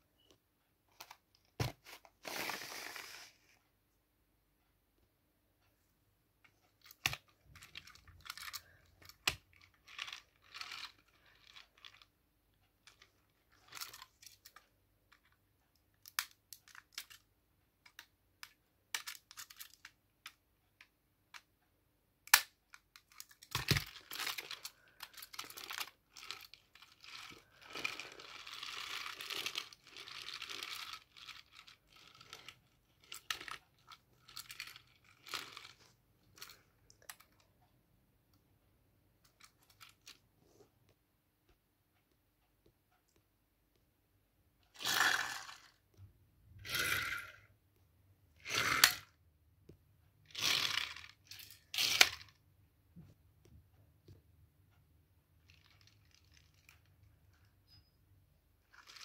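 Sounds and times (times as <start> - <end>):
toy train cars clicking: 22.3 - 37.4, 44.7 - 45.8, 50.3 - 52.3.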